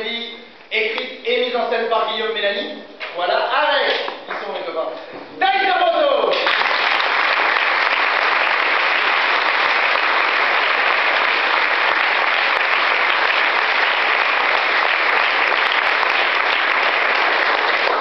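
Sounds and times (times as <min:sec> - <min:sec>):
audience applause: 0:06.3 - 0:18.0.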